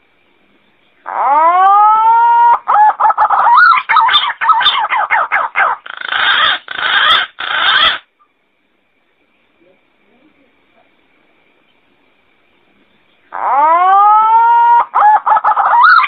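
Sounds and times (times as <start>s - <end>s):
pigeon whistling call: 13.4s - 16.0s.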